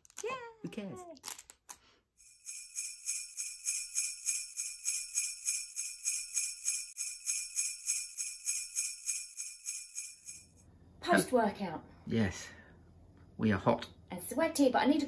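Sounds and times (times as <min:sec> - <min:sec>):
sleigh bells shaken: 0:02.2 - 0:10.6.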